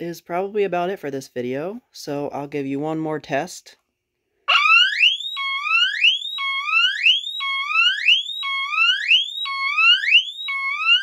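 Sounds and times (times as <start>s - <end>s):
smoke detector siren whooping: 4.5s - 11.0s.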